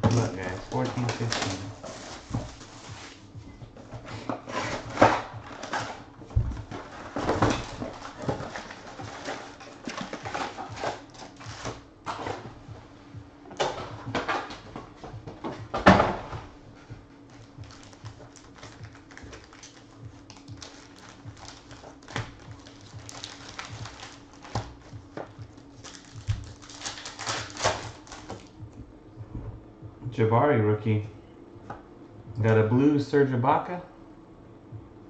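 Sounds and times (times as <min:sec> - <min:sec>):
foil packs crinkling and tearing: 0:00.0 - 0:03.2, 0:04.3 - 0:11.8, 0:17.2 - 0:28.5
faint low hum: 0:00.0 - 0:35.0.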